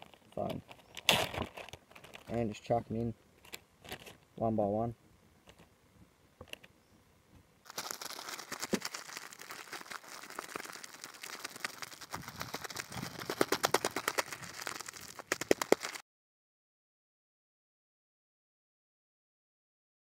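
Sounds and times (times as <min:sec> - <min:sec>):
plastic bag crinkling: 0:00.0 - 0:02.4, 0:03.4 - 0:04.2, 0:07.7 - 0:16.0.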